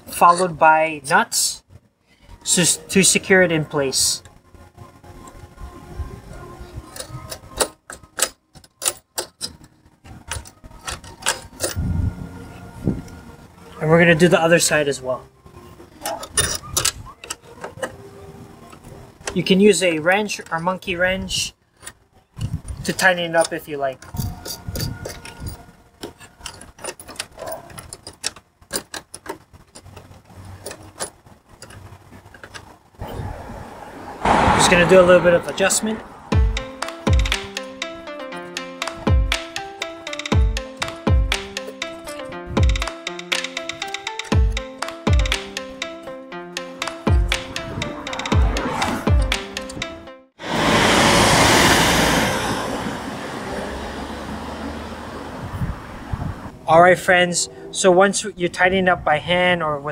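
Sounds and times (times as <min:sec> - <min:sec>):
small metal parts clicking: 0:06.9 - 0:11.8, 0:16.0 - 0:18.0, 0:21.7 - 0:32.7
metallic clicks and clinks: 0:16.0 - 0:17.9.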